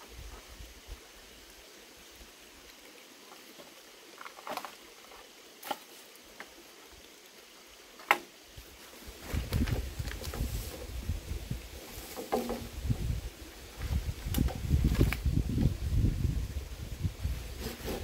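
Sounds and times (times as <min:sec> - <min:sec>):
rustling of leaves and stems: 0:02.2 - 0:18.0
knocks on bamboo poles: 0:12.1 - 0:12.8.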